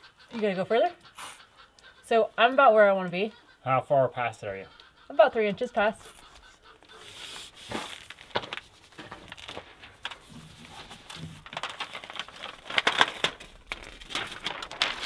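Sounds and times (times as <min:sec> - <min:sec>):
tape and house wrap crinkling: 0:06.1 - 0:15.0.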